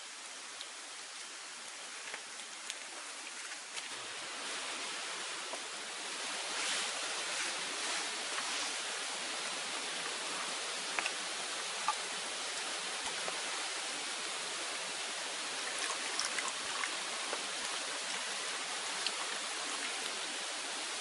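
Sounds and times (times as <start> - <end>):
rain falling: 0.0 - 21.0.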